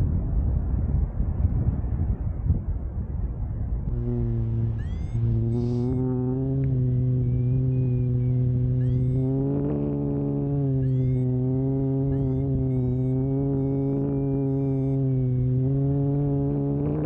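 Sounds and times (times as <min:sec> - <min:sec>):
wind on microphone: 0:00.0 - 0:17.0
low droning synth chord: 0:03.9 - 0:17.0
high chirping synth sweeps: 0:04.2 - 0:15.5.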